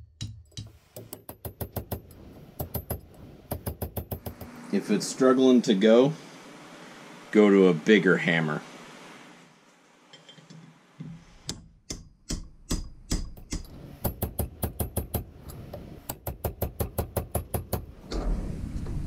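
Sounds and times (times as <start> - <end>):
hammer striking steel punch: 11.5 - 15.3.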